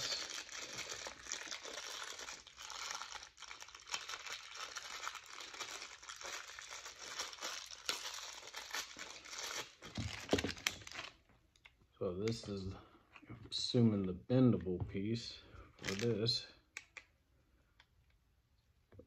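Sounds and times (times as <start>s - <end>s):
plastic wrapping crinkling: 0.0s - 11.3s, 15.8s - 16.2s.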